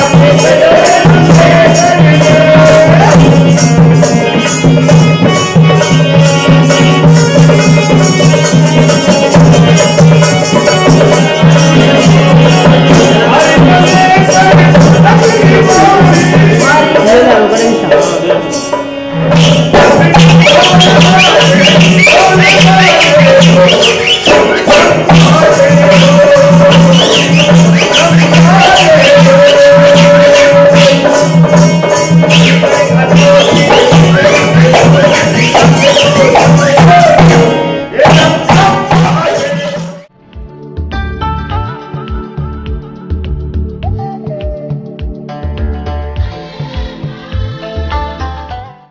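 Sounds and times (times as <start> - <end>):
person singing: 0.0 - 4.2, 10.6 - 40.5, 41.2 - 48.9
fast jingling percussion: 0.0 - 40.0
drum beating steady rhythm: 0.0 - 48.7
low drum beat: 19.2 - 39.4.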